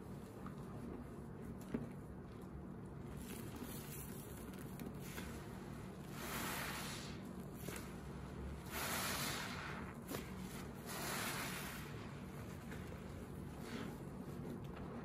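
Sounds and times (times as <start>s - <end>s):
wet sponge squelching: 3.0s - 15.0s.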